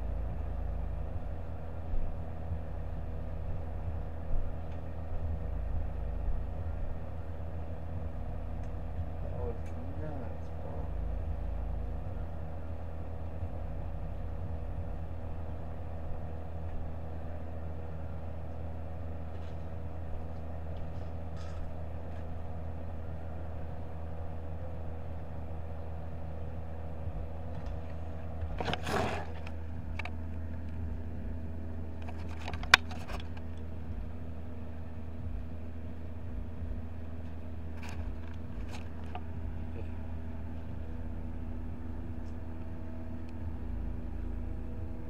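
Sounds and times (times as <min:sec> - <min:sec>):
steady fan hum: 0:00.0 - 0:45.0
camera handling noise: 0:28.6 - 0:30.2, 0:32.0 - 0:33.5.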